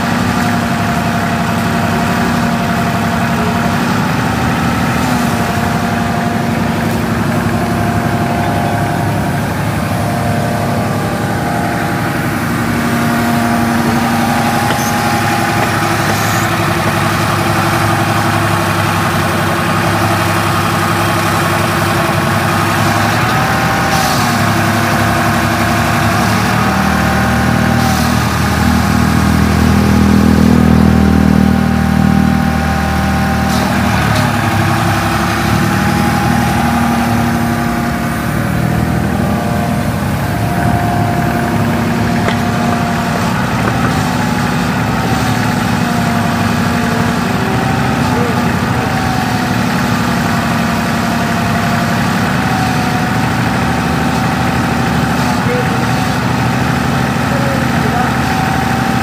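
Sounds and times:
diesel engine running: 0.0 - 59.0
high-pitched whine: 1.7 - 27.0.

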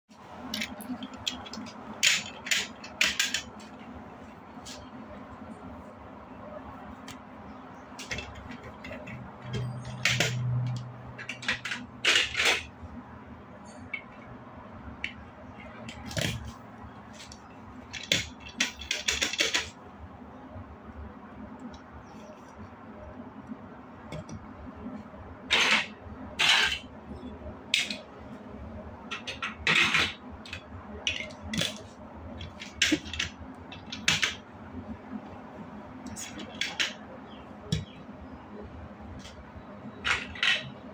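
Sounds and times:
plastic bricks clicking and clattering: 29.2 - 34.4.

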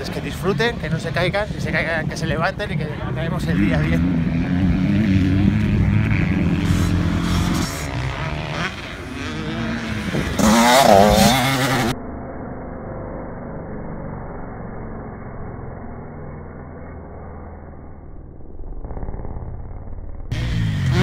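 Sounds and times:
dirt bike engines revving: 0.0 - 12.0, 19.1 - 21.0
distant engine drone: 0.0 - 21.0.

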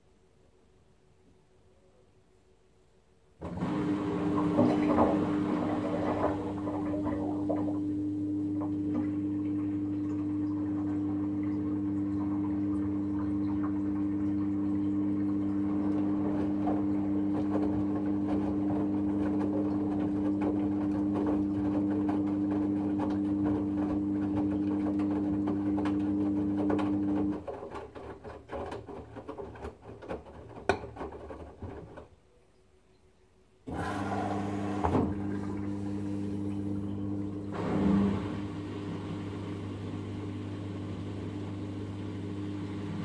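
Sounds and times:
washing machine motor hum: 3.4 - 32.1, 33.7 - 43.0
water sloshing: 3.6 - 7.9.

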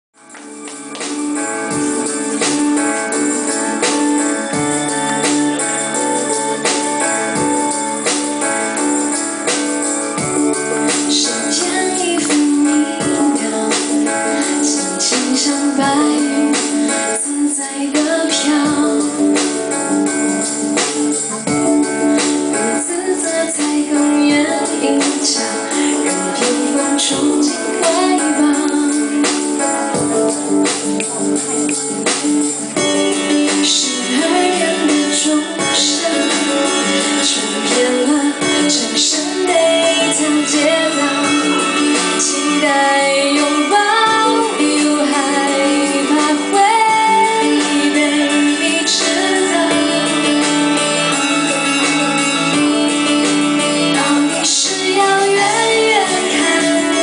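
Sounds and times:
backing music with guitar: 0.2 - 57.0
woman singing into microphone: 0.8 - 57.0.

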